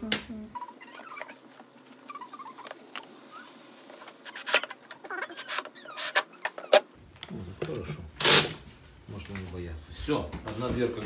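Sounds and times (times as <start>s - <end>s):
small scratching sounds: 0.6s - 6.8s
cordless drill-driver: 8.2s - 8.6s.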